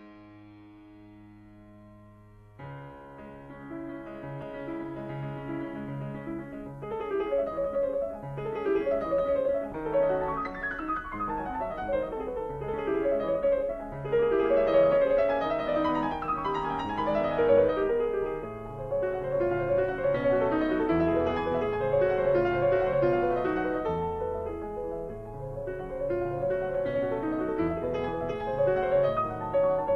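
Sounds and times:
background piano music: 0.0s - 29.9s.

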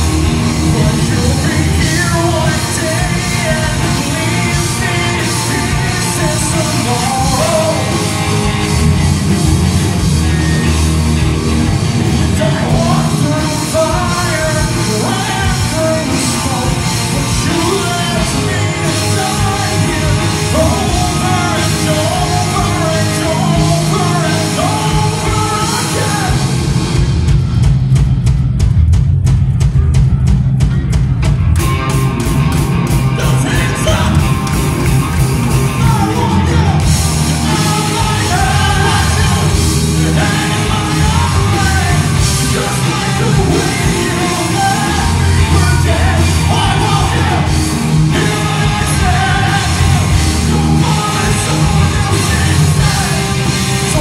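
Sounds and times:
person singing: 0.0s - 8.6s, 12.1s - 26.6s, 33.1s - 34.6s, 35.7s - 54.0s
drum kit: 0.0s - 54.0s
electric guitars: 0.0s - 54.0s.

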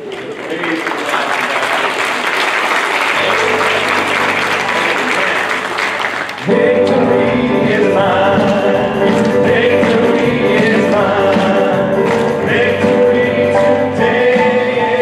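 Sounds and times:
congregation applauding: 0.0s - 13.0s
church band and singers: 3.2s - 15.0s.

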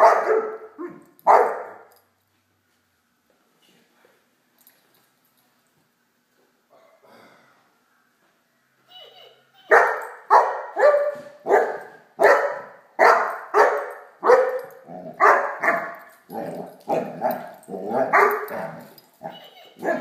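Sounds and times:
puppy barking: 0.0s - 1.9s, 9.6s - 16.0s, 16.9s - 20.0s.

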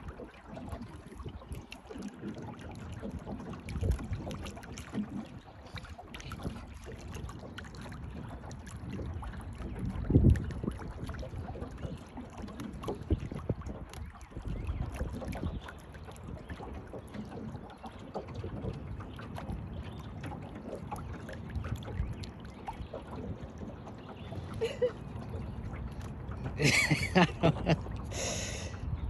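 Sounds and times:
water lapping against boat hull: 0.0s - 29.0s
wind buffeting microphone: 0.0s - 29.0s.

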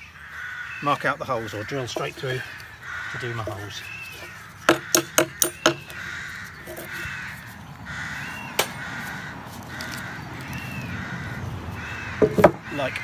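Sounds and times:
rooks cawing: 0.0s - 13.0s
sharp knocks: 4.7s - 5.9s, 12.2s - 12.7s.

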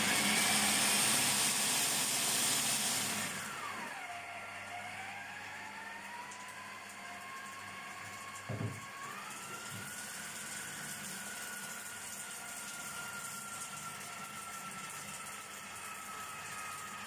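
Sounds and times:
food processor motor whining: 0.0s - 17.0s
low thump: 8.5s - 8.8s.

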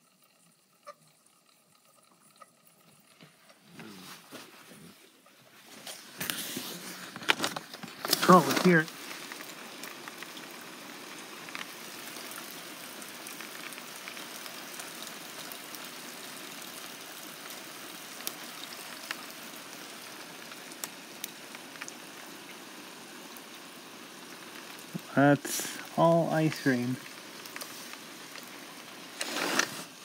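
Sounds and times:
freezing rain hissing: 2.8s - 30.0s
ice ticking: 6.1s - 22.6s, 24.2s - 30.0s.

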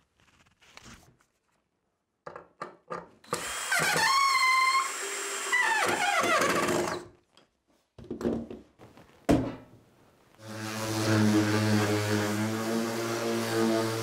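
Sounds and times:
cordless drill boring into wood: 3.3s - 7.0s
power tool humming: 10.4s - 14.0s.

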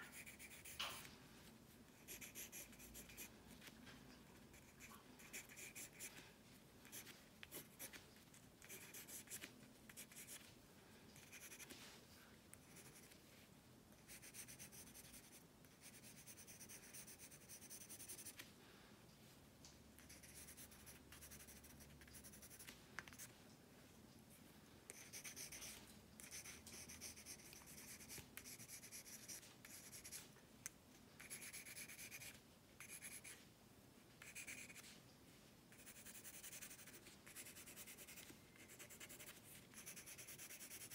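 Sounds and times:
pencil scratching on paper: 0.0s - 1.1s, 2.0s - 3.7s, 4.4s - 6.2s, 6.8s - 8.0s, 8.6s - 10.5s, 11.2s - 11.8s, 12.6s - 13.2s, 14.0s - 18.4s, 20.0s - 23.3s, 24.9s - 30.2s, 31.2s - 33.4s, 34.2s - 34.8s, 35.7s - 40.9s.

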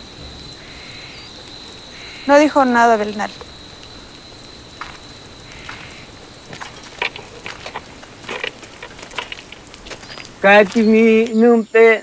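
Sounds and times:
faint outdoor hiss: 0.0s - 12.0s
footsteps rustling through undergrowth: 4.8s - 11.4s.

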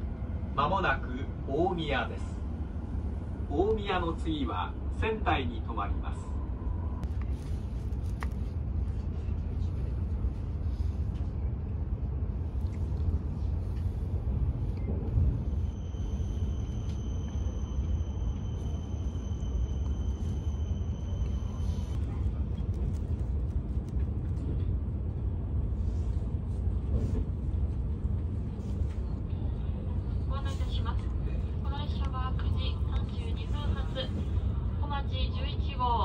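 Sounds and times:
train cabin low rumble: 0.0s - 36.0s
faint high whine: 14.7s - 22.2s.

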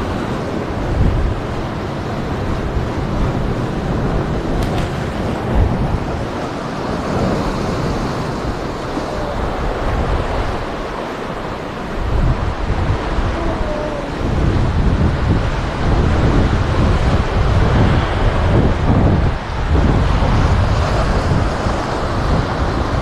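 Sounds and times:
wind buffeting microphone: 0.0s - 23.0s
surf breaking on rocks: 2.0s - 23.0s.

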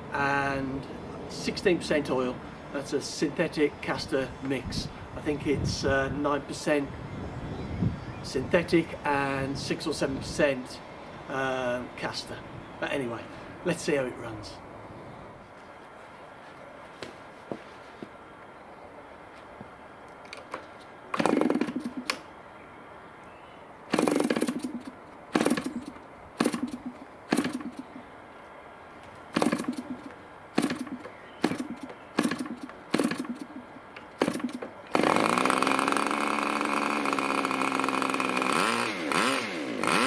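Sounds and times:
model engine running steadily: 21.1s - 22.2s, 23.9s - 28.0s, 29.3s - 33.6s, 34.2s - 40.0s
model glow engine firing: 34.2s - 40.0s.

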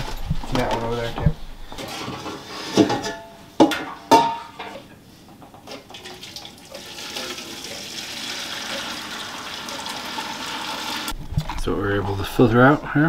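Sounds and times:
metal pot clanking: 1.8s - 4.9s
liquid pouring into pot: 5.9s - 11.1s.

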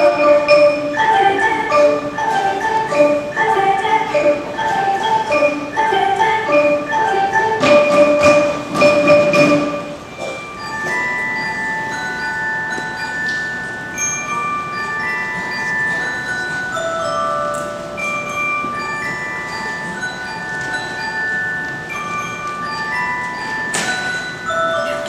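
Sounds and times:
glockenspiel and xylophone melody: 0.0s - 25.0s.

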